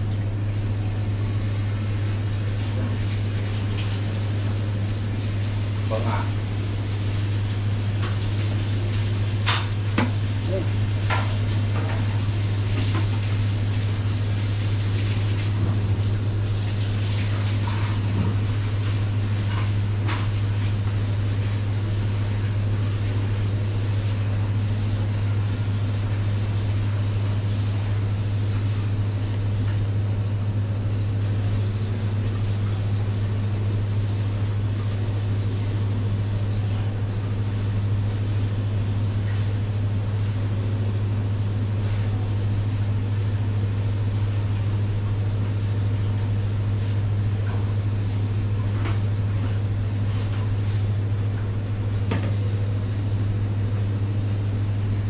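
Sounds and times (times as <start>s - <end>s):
low machine hum: 0.0s - 55.0s.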